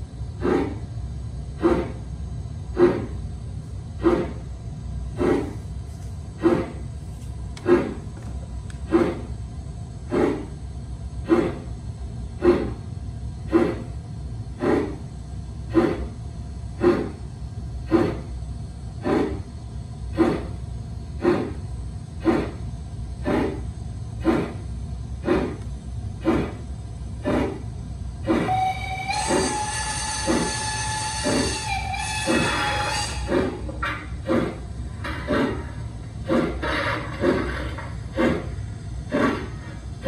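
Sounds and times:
model locomotive steam chuffs: 0:00.0 - 0:07.0, 0:07.6 - 0:40.0
chime whistle: 0:28.5 - 0:33.2.

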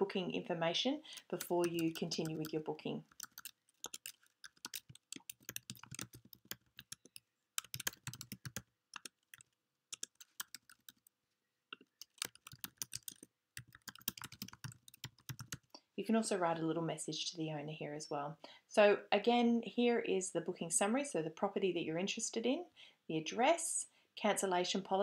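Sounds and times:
typing on computer keyboard: 0:01.1 - 0:11.1, 0:11.8 - 0:15.7.

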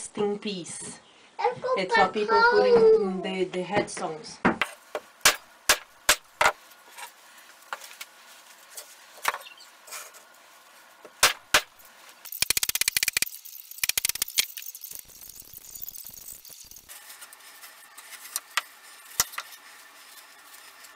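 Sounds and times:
rapid clicking: 0:12.3 - 0:16.8.

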